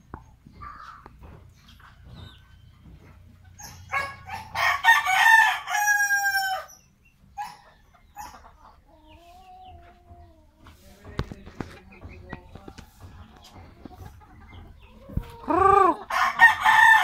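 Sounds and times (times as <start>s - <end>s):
rooster crowing: 4.0s - 6.7s, 15.5s - 17.0s.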